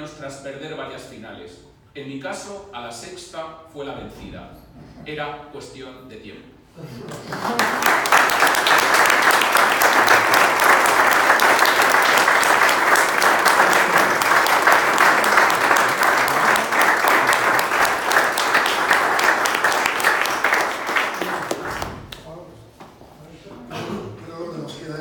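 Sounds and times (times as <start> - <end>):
crowd applauding: 7.0 - 22.3.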